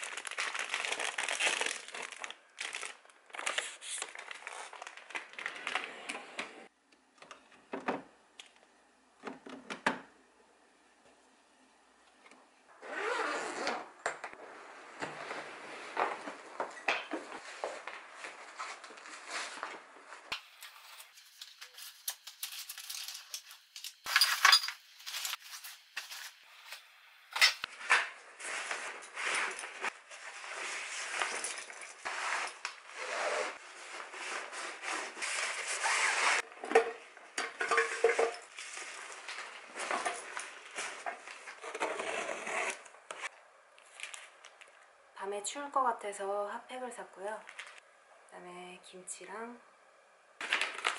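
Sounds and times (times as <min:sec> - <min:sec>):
nylon bags rustling: 0:00.0 - 0:05.8, 0:27.8 - 0:36.5, 0:37.6 - 0:41.5
metal cookware clinking: 0:23.2 - 0:25.2, 0:36.8 - 0:38.5.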